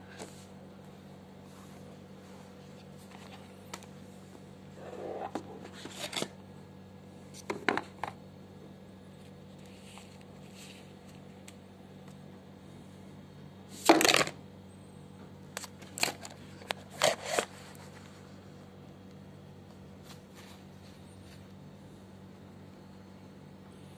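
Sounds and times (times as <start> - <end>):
steady low hum: 0.0 - 23.9
paper rustling: 5.0 - 6.3, 15.6 - 18.2.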